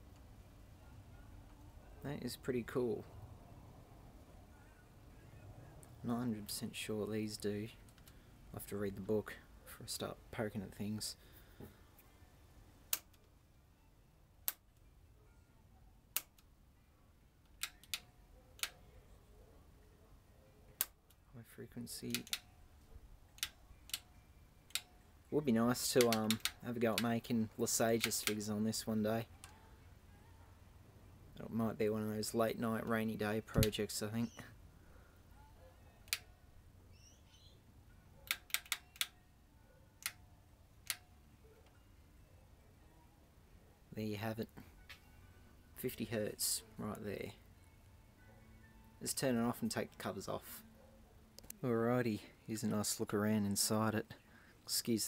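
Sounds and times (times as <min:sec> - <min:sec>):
rotary switch clicks: 0:17.5 - 0:18.8, 0:22.1 - 0:22.5, 0:24.7 - 0:24.9, 0:26.0 - 0:27.1, 0:38.2 - 0:39.2, 0:40.8 - 0:41.1.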